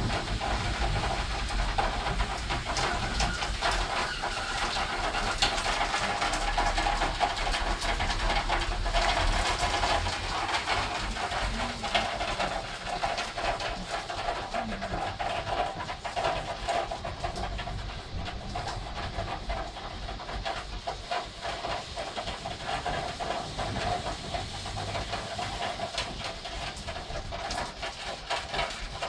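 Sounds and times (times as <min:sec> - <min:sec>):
heavy rain hissing: 0:00.0 - 0:29.0
raindrops ticking close by: 0:00.0 - 0:29.0.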